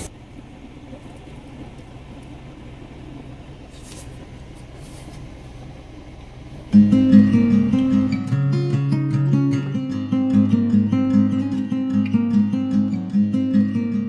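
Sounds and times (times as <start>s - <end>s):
faint crackles: 0.0s - 6.7s
car cabin hum: 0.0s - 14.0s.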